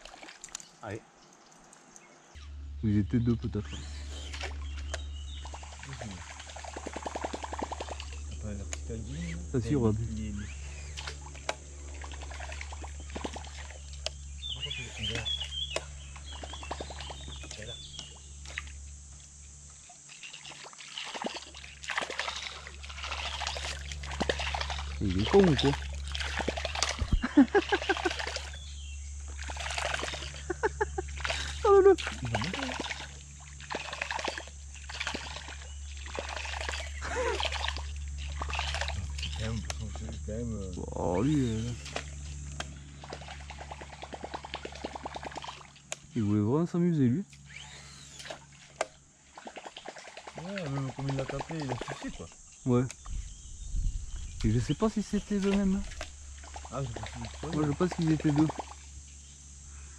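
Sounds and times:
small water splashes: 0.0s - 2.3s, 3.8s - 9.0s, 10.2s - 18.9s, 19.7s - 40.2s, 41.0s - 46.2s, 47.3s - 53.1s, 54.1s - 59.0s
steady low hum: 0.0s - 59.9s
loud splash: 20.3s - 28.6s, 29.3s - 30.4s
person exclaiming: 31.6s - 32.8s, 37.0s - 37.5s.

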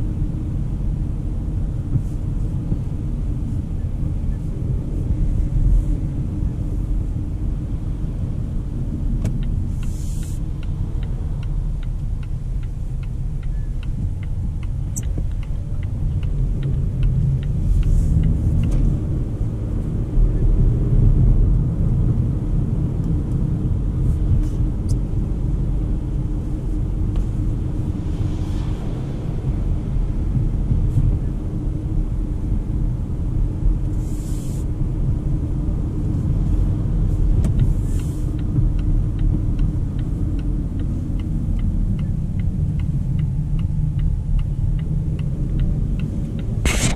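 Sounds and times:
car engine and tyres rumble: 0.0s - 46.9s
turn signal ticking: 5.2s - 29.6s, 34.8s - 46.9s
brief hisses: 46.6s - 46.9s.

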